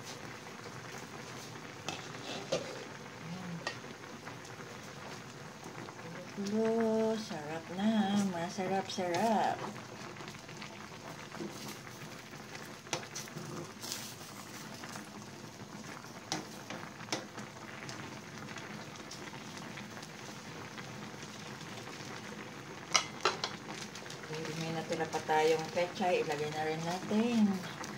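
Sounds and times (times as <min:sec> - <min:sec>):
broth boiling and bubbling: 0:00.0 - 0:27.9.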